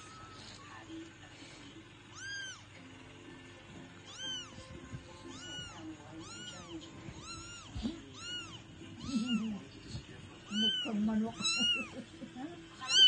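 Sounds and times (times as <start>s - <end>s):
kitten meowing: 2.1s - 2.6s, 4.1s - 9.5s, 10.5s - 12.0s.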